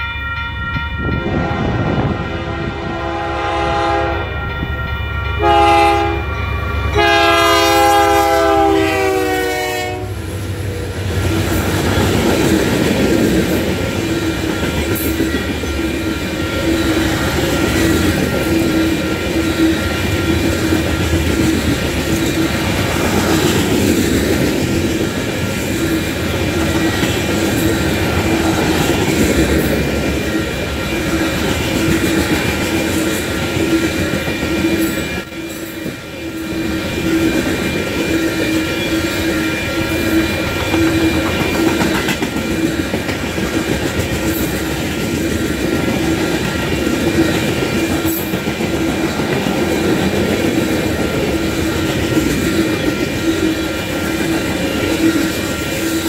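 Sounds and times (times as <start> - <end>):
locomotive horn blasts: 0.1 - 4.4, 5.4 - 10.3
freight cars rumbling on rails: 6.1 - 56.0.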